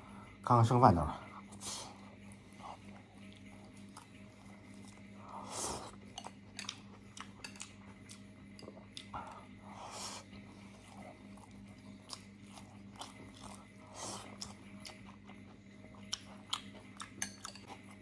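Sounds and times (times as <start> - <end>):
person chewing with lip-smacking: 5.8 - 17.9.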